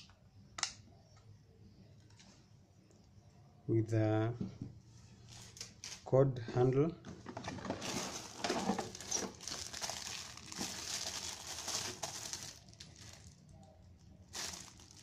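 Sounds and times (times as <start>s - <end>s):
plastic packaging crinkling: 7.4s - 15.0s.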